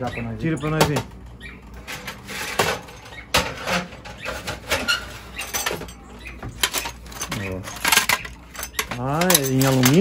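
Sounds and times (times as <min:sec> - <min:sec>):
metal ice tray clicks and scrapes: 0:06.6 - 0:10.0.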